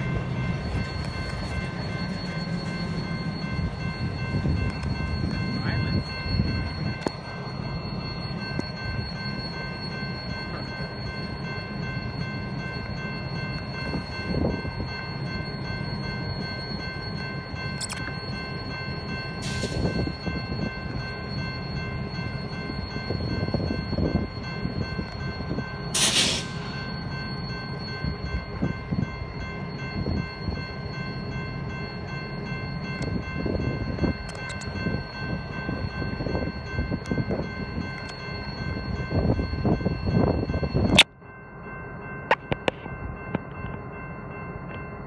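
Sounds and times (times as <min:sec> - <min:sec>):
locomotive engine and wheel rumble: 0:00.0 - 0:45.0
steady high tones: 0:00.0 - 0:45.0
loud air hiss: 0:26.0 - 0:26.6.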